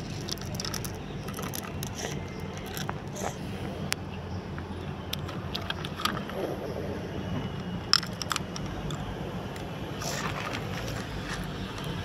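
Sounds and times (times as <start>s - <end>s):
toy clicking and crunching on gravel: 0.0s - 3.4s, 5.1s - 6.4s, 7.6s - 12.0s
low outdoor rumble: 0.0s - 12.0s.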